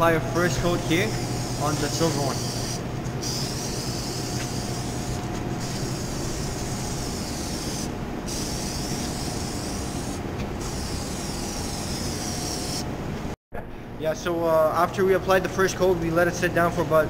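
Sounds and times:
steady low hum: 0.0s - 17.0s
aerosol can spraying: 2.2s - 12.8s.

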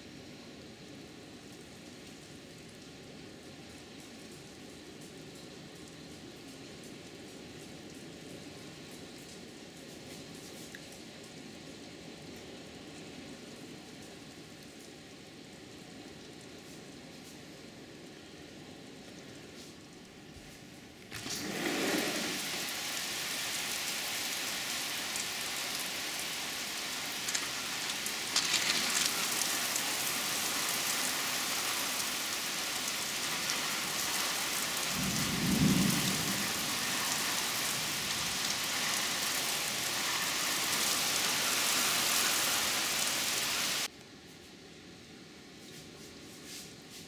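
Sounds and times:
steady rain pouring: 0.0s - 46.9s.

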